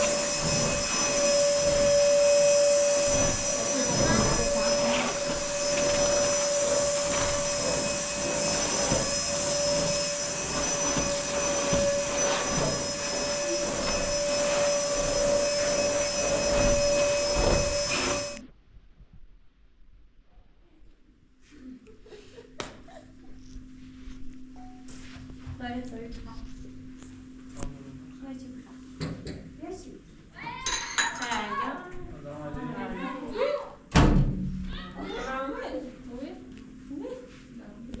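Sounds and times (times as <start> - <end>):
hiss: 0.0 - 18.4
small motor whining: 0.0 - 18.4.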